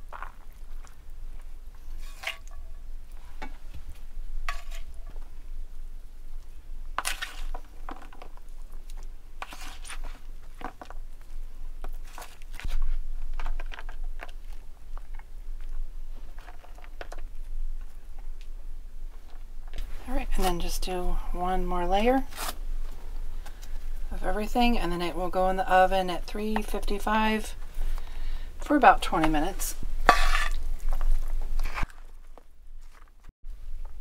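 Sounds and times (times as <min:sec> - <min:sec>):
spoon scraping moist filling: 0:08.9 - 0:10.6, 0:29.2 - 0:31.9.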